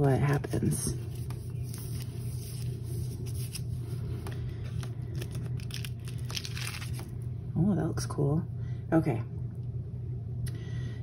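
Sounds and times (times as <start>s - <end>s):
plastic mailer crinkling and scraping: 0.0s - 7.2s
steady low hum: 0.0s - 11.0s.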